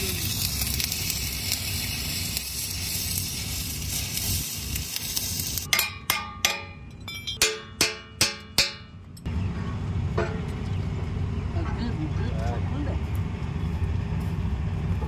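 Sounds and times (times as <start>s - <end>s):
arc welding crackling hiss: 0.0s - 5.7s
hammer striking steel: 5.7s - 9.3s, 10.2s - 10.6s.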